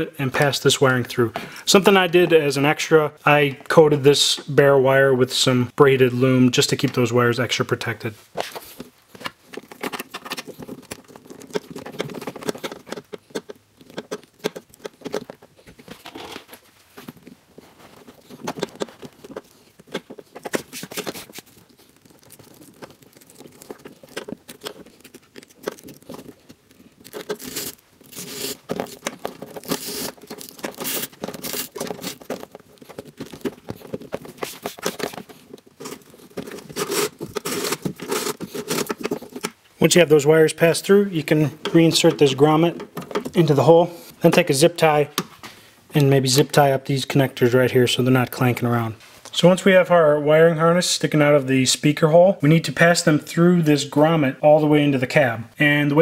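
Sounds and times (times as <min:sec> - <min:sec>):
wires rustling and scraping: 0:00.2 - 0:49.8.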